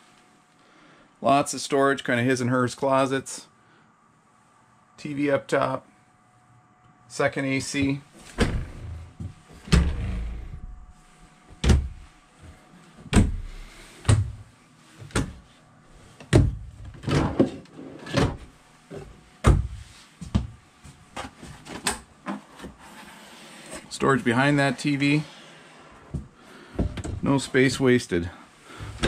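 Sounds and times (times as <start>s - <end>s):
cabinet doors opening and shutting: 8.2s - 10.8s, 11.6s - 12.0s, 13.1s - 13.5s, 16.2s - 18.5s.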